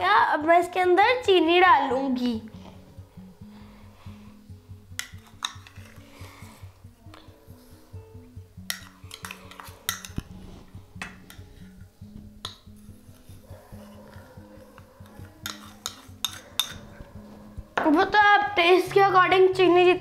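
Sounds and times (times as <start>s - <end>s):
soft background music: 0.0s - 20.0s
spoons clinking on saucepan: 5.0s - 6.0s, 8.7s - 10.2s, 15.4s - 16.8s.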